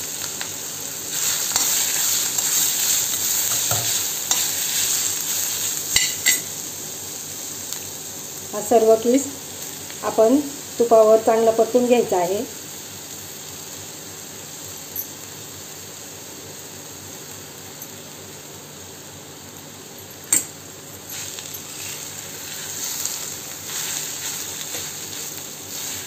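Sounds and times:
mango sizzling in ghee: 0.0 - 26.0
spoon scraping and stirring: 1.3 - 5.1
spoon clinking against pan: 6.0 - 6.5.

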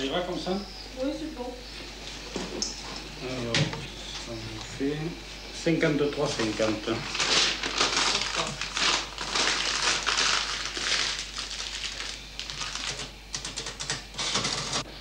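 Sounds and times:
paper rustling and crinkling: 6.2 - 13.1.

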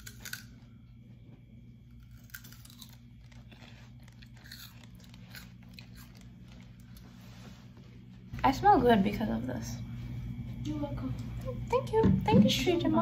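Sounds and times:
celery being bitten and chewed: 0.0 - 0.8, 1.4 - 7.1
steady low hum: 0.0 - 13.0.

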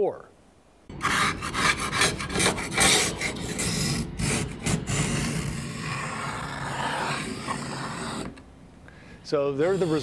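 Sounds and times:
scraper rasping ice: 1.0 - 8.4, 9.6 - 10.0.

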